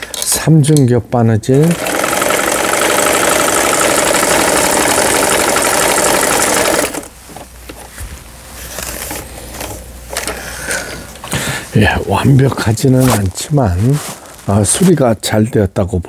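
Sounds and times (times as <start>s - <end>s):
sewing machine running: 1.6s - 7.1s.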